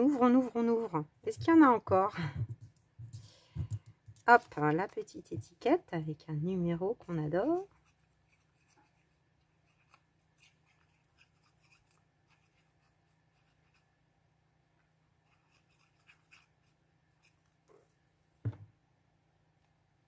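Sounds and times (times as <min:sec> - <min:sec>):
soft knock: 0:18.4 - 0:18.8.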